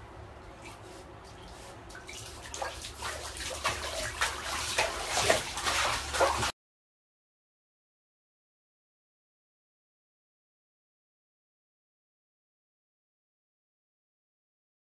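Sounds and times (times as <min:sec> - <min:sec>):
bathwater sloshing and splashing: 0:00.6 - 0:06.6.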